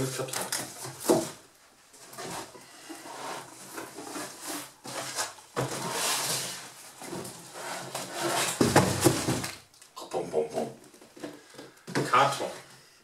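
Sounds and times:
cardboard rustling and scraping: 0:00.0 - 0:09.6.

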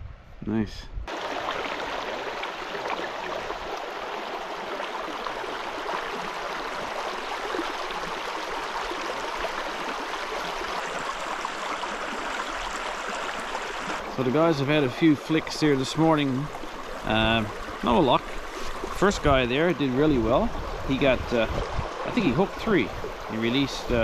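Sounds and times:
river water rushing over rocks: 0:01.1 - 0:14.1.

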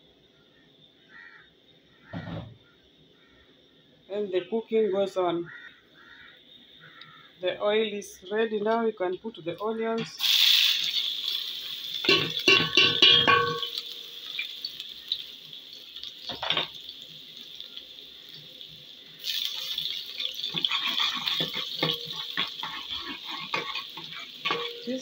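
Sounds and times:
onions sizzling in hot oil: 0:10.0 - 0:25.0
knocks and ringing of metal pot: 0:12.0 - 0:14.0, 0:21.2 - 0:22.6, 0:24.4 - 0:25.0
spoon stirring against pot: 0:12.0 - 0:14.4, 0:19.3 - 0:25.0.

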